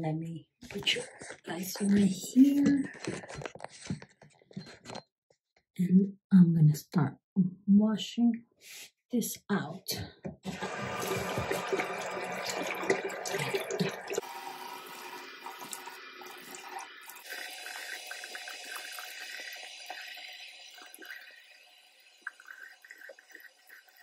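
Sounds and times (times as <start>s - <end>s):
sink tap running: 10.4s - 24.0s
water splashing on face: 10.5s - 14.3s
water dripping: 10.5s - 24.0s.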